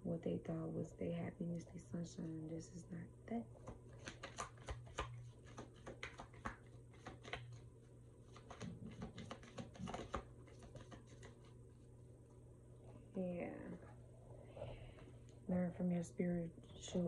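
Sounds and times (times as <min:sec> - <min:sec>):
cards being shuffled: 0:03.6 - 0:11.6.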